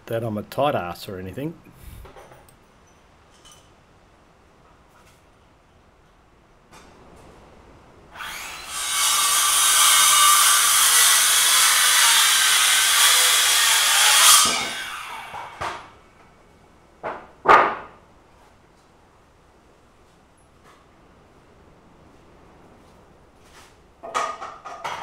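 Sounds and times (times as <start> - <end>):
power saw cutting wood: 8.1 - 16.0.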